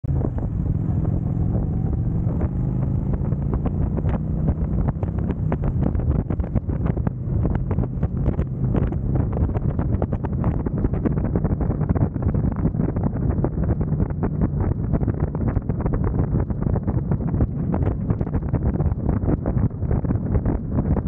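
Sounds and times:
motorcycle engine accelerating: 0:00.0 - 0:21.0
wind buffeting microphone: 0:00.0 - 0:21.0.

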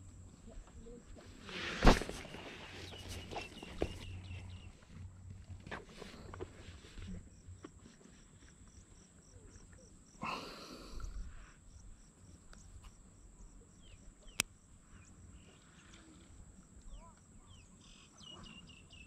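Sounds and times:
insects chirping: 0:06.1 - 0:19.0.

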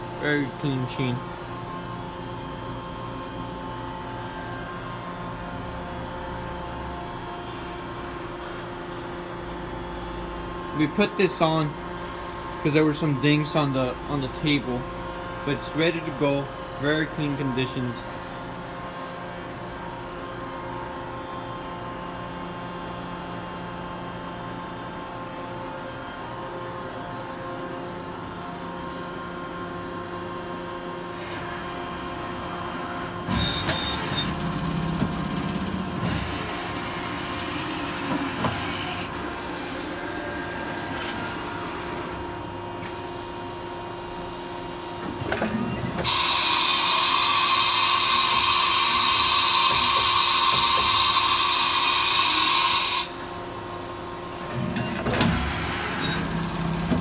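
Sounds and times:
machine electrical hum: 0:00.0 - 0:57.0
servo whine and rumble: 0:00.0 - 0:57.0
compressed air hiss: 0:46.0 - 0:53.2.

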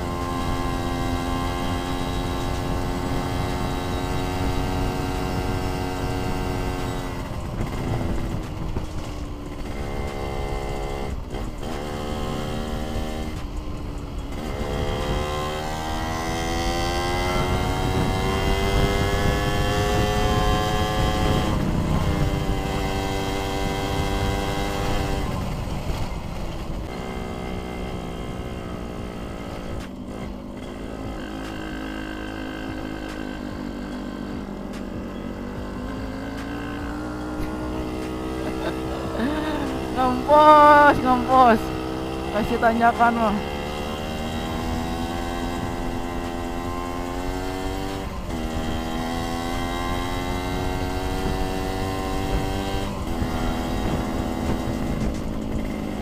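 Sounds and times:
wind rumble on microphone: 0:00.0 - 0:31.7, 0:43.3 - 0:56.0
motorcycle engine shifting gears: 0:00.0 - 0:56.0.

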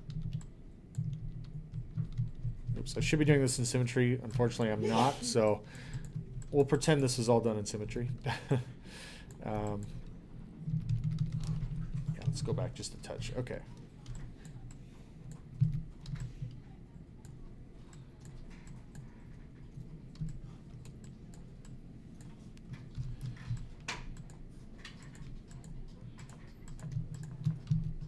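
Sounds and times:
keyboard and mouse clicks: 0:14.0 - 0:16.6, 0:20.1 - 0:28.0.

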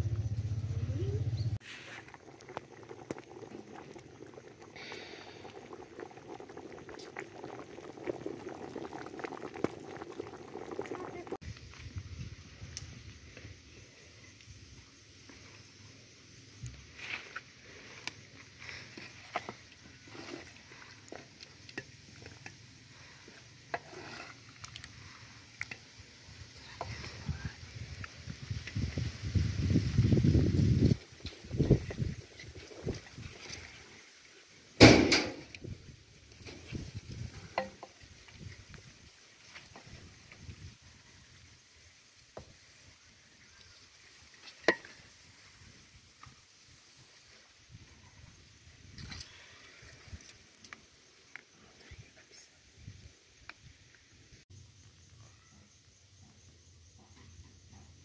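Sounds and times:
stew bubbling pops: 0:01.9 - 0:12.0, 0:16.6 - 0:33.9, 0:34.7 - 0:41.5, 0:44.3 - 0:45.5
wooden spoon scraping a pot: 0:17.0 - 0:22.4, 0:23.2 - 0:25.7.

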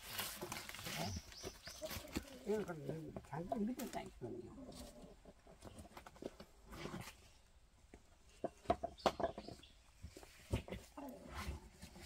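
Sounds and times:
bark slabs knocking and rustling: 0:08.4 - 0:10.9.

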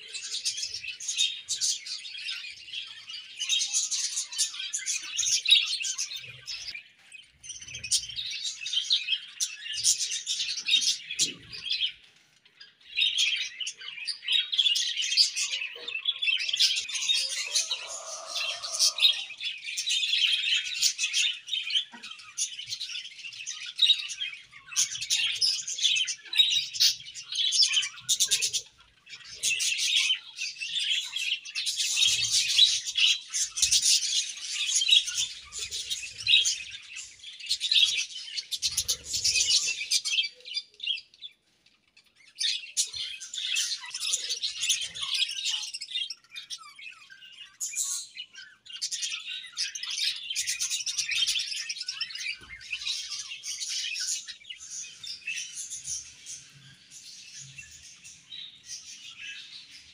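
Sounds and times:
budgerigars chattering: 0:15.4 - 0:22.6.

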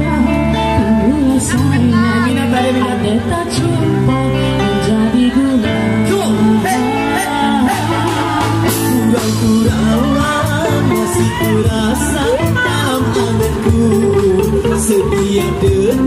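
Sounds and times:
guitar: 0:00.0 - 0:16.0
live band playing: 0:00.0 - 0:16.0
person singing: 0:00.0 - 0:16.0
drum kit: 0:05.9 - 0:16.0.

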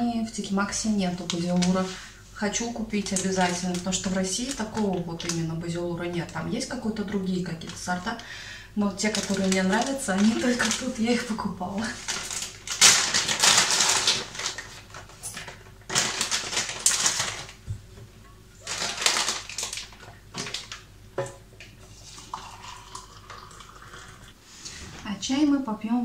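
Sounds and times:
plastic foil pouch crinkling: 0:01.1 - 0:08.3, 0:08.9 - 0:17.6, 0:18.6 - 0:20.8
water poured into a mug: 0:21.9 - 0:24.3.

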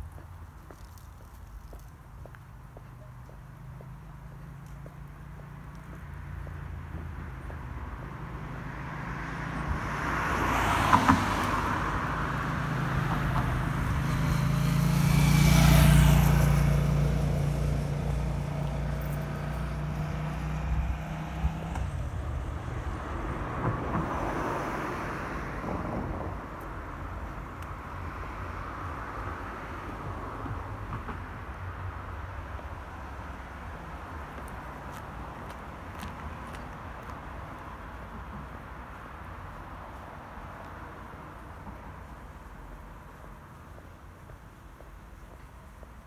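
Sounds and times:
vehicle engine hum: 0:00.0 - 0:46.0
vehicle passing softly: 0:03.4 - 0:30.5.

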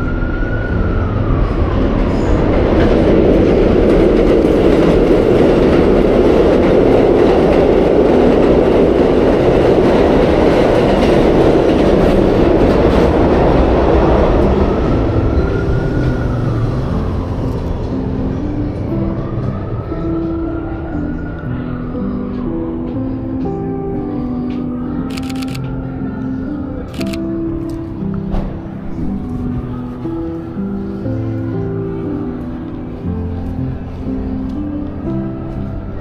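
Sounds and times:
train wheels rumbling on rails: 0:00.0 - 0:20.7
train whine: 0:00.0 - 0:36.0.

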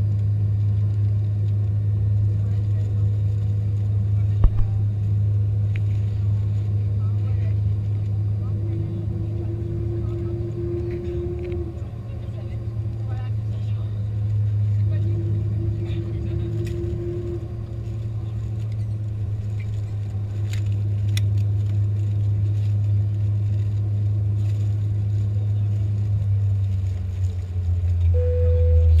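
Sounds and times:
low aircraft cabin hum: 0:00.0 - 0:29.0
steady higher tone: 0:28.1 - 0:29.0.

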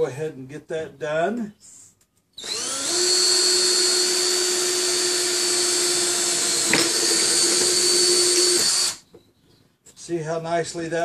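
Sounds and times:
cordless drill whining: 0:02.4 - 0:09.0.

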